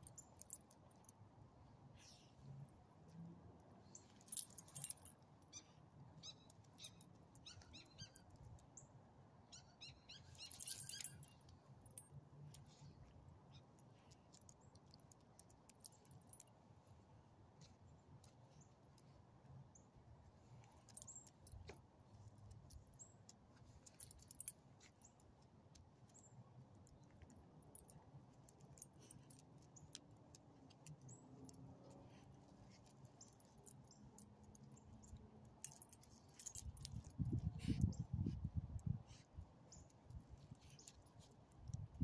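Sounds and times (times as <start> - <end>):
faint outdoor hum: 0.0 - 42.0
light clicks and ticks: 10.4 - 16.6, 20.5 - 38.1, 38.7 - 42.0.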